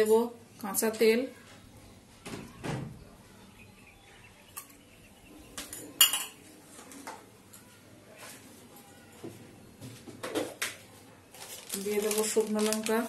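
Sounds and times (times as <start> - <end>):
dishes and utensils clinking: 5.6 - 7.6.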